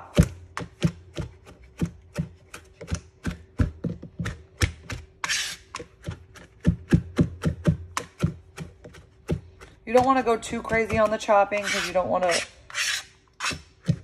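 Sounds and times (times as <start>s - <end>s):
knife chopping on cutting board: 0.1s - 14.0s
knife scraping board: 5.2s - 5.8s, 10.8s - 14.0s.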